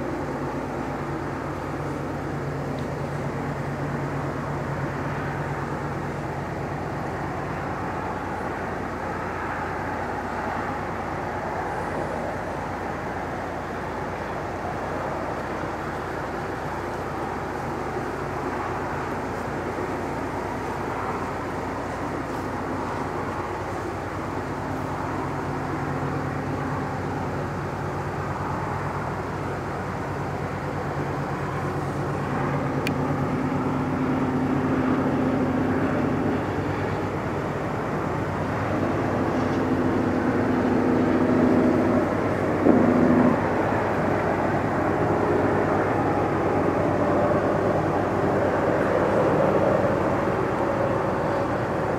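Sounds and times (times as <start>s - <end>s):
distant train rumble: 0.0s - 51.9s
locomotive horn blasts: 42.6s - 43.8s.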